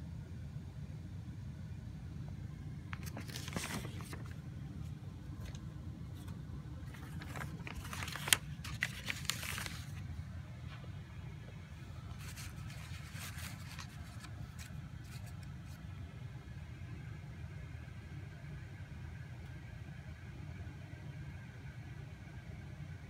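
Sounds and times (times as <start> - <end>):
paper rustling: 2.9 - 15.8.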